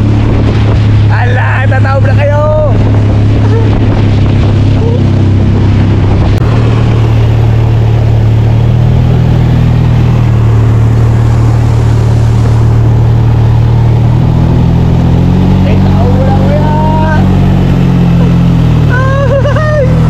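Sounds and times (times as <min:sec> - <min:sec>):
motorboat engine droning: 0:00.0 - 0:20.0
wake water rushing: 0:00.0 - 0:20.0.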